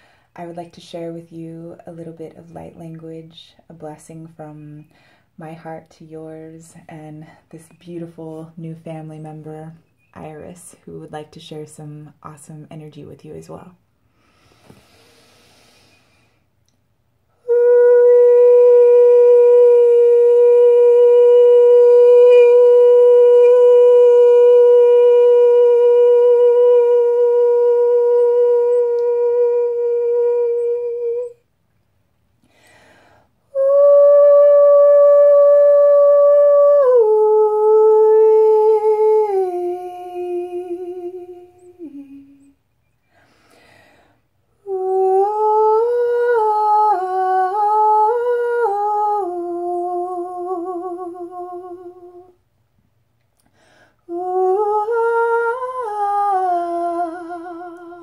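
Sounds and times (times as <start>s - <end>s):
woman breathing: 0.0s - 0.4s, 4.9s - 5.4s, 14.0s - 16.6s, 32.4s - 33.5s, 43.0s - 44.4s, 53.4s - 54.1s
woman singing wordless notes: 0.4s - 13.8s, 17.3s - 31.5s, 33.4s - 42.6s, 44.6s - 52.4s, 54.0s - 58.0s.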